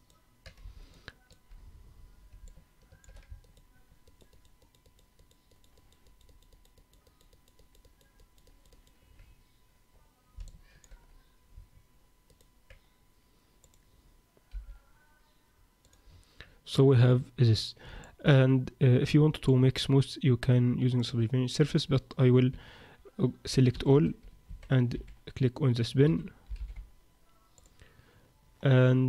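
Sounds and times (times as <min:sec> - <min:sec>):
computer mouse and keyboard clicks: 0:02.4 - 0:09.3.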